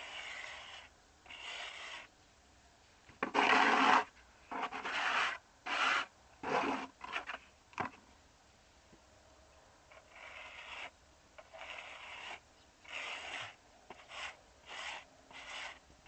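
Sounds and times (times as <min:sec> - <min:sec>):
rasping scraping strokes: 0:00.0 - 0:02.1, 0:03.2 - 0:07.4, 0:09.9 - 0:15.8.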